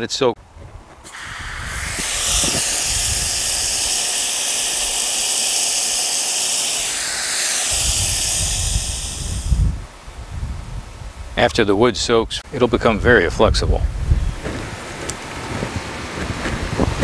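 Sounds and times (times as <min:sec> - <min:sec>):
hose spraying water into bucket: 0:01.0 - 0:09.7.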